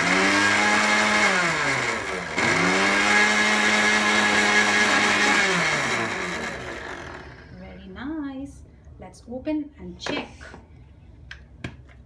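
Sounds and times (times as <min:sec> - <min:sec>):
mixer grinder motor whirring: 0:00.0 - 0:07.6.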